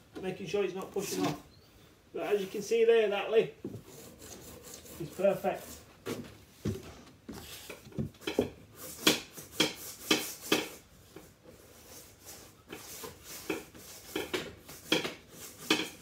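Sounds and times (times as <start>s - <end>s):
hand rubbing along edge: 3.7s - 5.9s.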